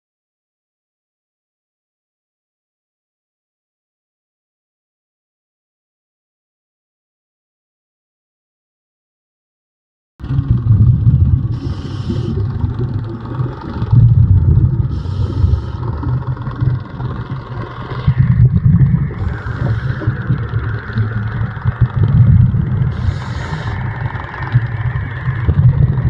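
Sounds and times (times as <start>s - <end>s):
low rumble of moving water: 10.2s - 26.0s
diver's regulator hissing: 11.4s - 21.9s, 22.5s - 24.6s.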